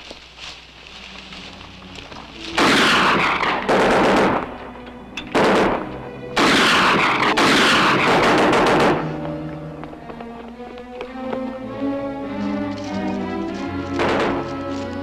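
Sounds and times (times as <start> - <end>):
music: 0.7 - 15.0
rapid gunfire bursts: 2.6 - 4.5, 5.4 - 5.8, 6.4 - 9.1.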